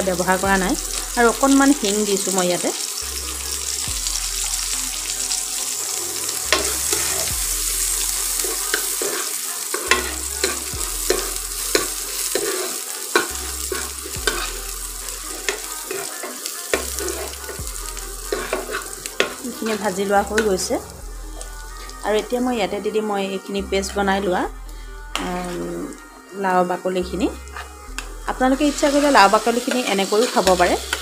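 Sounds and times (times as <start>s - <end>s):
onions sizzling in oil: 0.0s - 23.4s, 27.3s - 31.0s
spoon scraping a pan: 6.2s - 17.6s, 18.2s - 20.7s.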